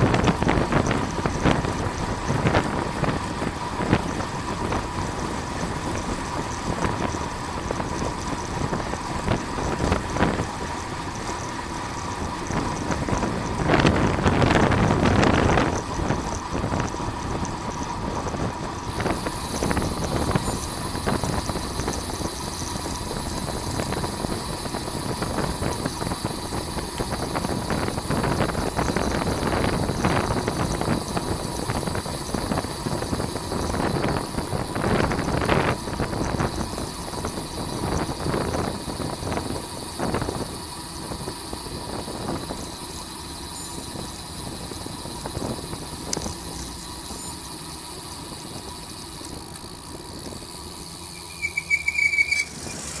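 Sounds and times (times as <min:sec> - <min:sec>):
wind rushing over microphone: 0:00.0 - 0:10.9, 0:12.1 - 0:42.8, 0:43.7 - 0:46.8
tyre and road noise: 0:00.0 - 0:53.0
short high squeal: 0:51.1 - 0:53.0.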